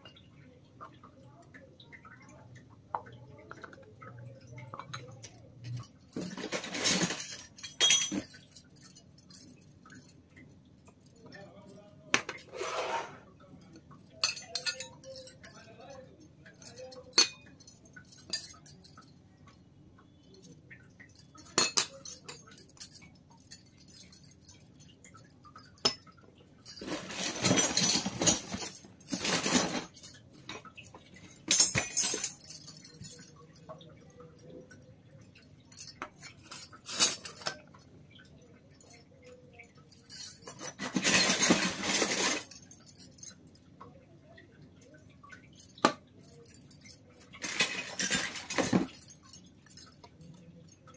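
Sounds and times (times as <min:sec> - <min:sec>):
toy metal utensils clinking: 0:00.0 - 0:50.9
handling noise: 0:26.6 - 0:33.4.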